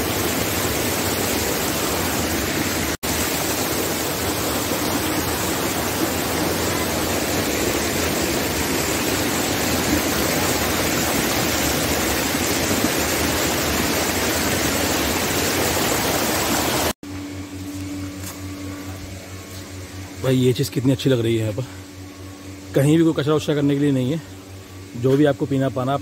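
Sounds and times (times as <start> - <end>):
rush of flowing water: 0.0 - 17.0.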